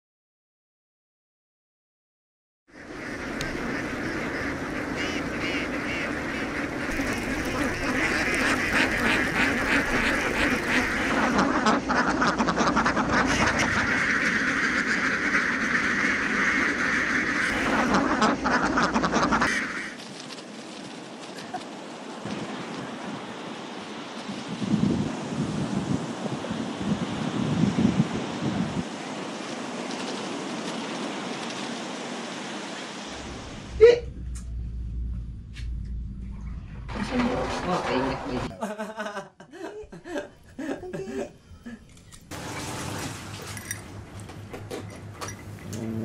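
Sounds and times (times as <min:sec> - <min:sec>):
ducks quacking: 0:02.7 - 0:20.0
wind: 0:02.7 - 0:46.0.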